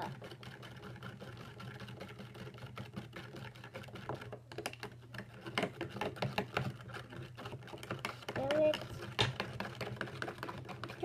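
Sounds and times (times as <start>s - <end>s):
utensil tapping plastic tub: 4.0s - 11.0s.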